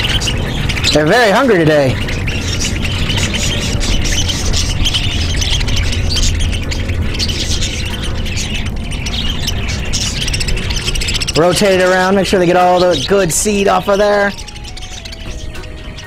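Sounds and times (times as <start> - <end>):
low rumble: 0.0 - 12.5
budgerigars chattering and squawking: 0.0 - 16.0.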